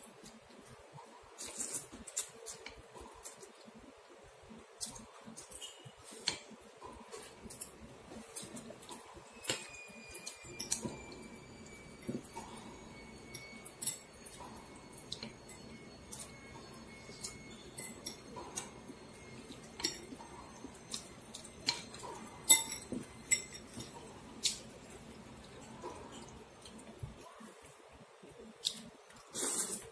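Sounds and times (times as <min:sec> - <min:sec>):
chopsticks and spoon clinking bowl: 0:04.8 - 0:26.8.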